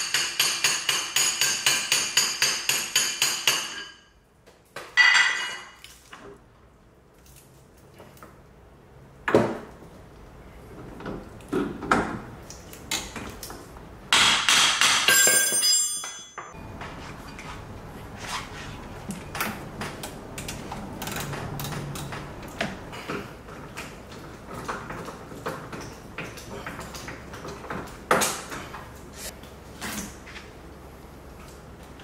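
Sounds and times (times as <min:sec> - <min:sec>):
metallic ringing: 0:15.1 - 0:18.0.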